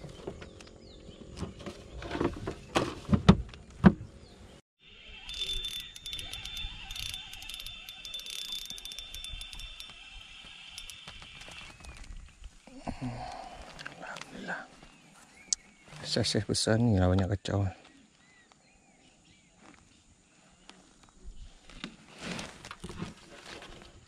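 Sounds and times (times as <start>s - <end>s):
fishing reel winding: 5.2s - 11.6s.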